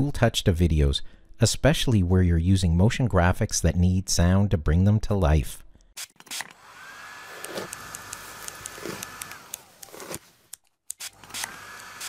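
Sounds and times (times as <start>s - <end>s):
hair dryer whirring: 6.5s - 10.2s, 11.1s - 12.0s
scissor snips: 7.4s - 12.0s.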